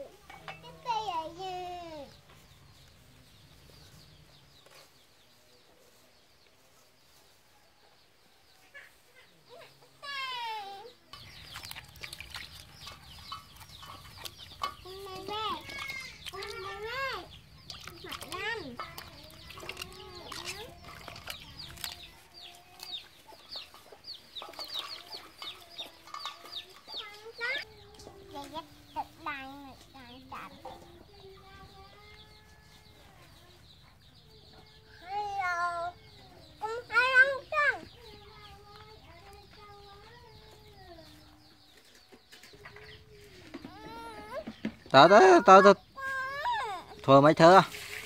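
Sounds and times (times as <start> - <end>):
chickens clucking: 8.5 - 10.2, 10.9 - 48.0
water splashing in steel bowl: 11.1 - 22.9, 47.4 - 48.0.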